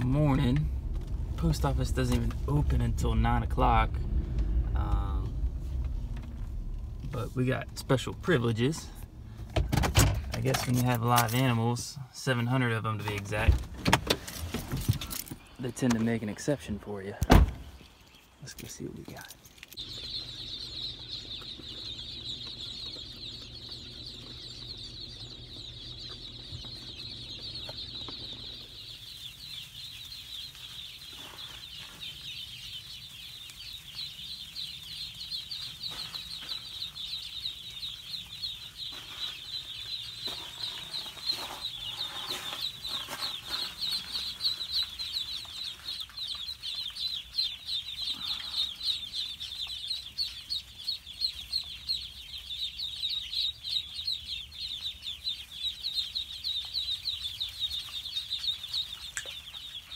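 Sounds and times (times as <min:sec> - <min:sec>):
car engine hum: 0:00.0 - 0:11.6, 0:19.8 - 0:30.7
ducklings peeping: 0:00.0 - 0:59.9.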